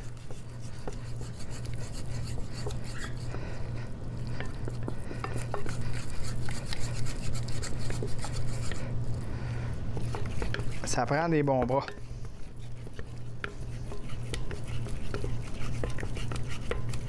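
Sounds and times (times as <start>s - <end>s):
steady low hum: 0.0s - 17.0s
wooden spatula scraping saucepan: 4.4s - 9.0s, 10.0s - 17.0s.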